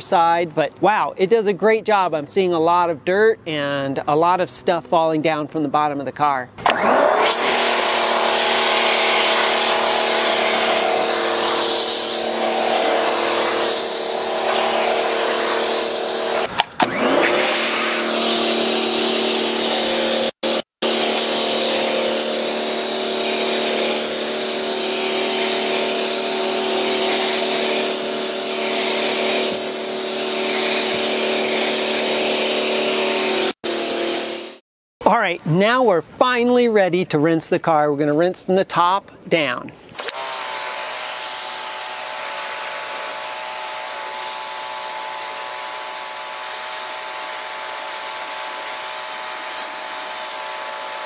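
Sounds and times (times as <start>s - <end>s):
pressure washer motor hum: 6.6s - 34.6s, 40.0s - 51.0s
water spray hissing: 8.3s - 16.5s, 17.5s - 34.6s.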